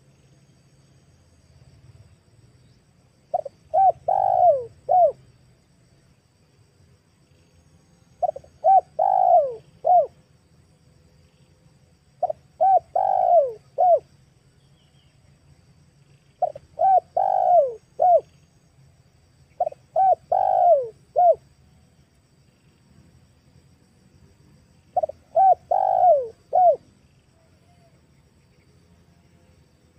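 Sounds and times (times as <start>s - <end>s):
dove cooing: 3.3s - 5.2s, 8.2s - 10.2s, 12.2s - 14.1s, 16.4s - 18.3s, 19.6s - 21.4s, 24.9s - 26.9s.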